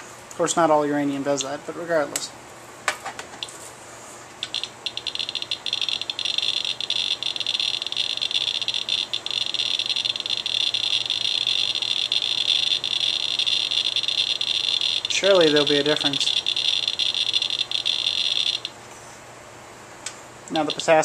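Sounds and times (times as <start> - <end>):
geiger counter clicking: 4.4 - 18.8.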